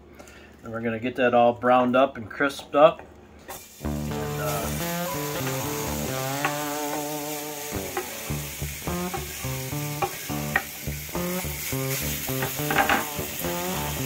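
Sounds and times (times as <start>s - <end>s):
plucked string music: 3.8s - 14.0s.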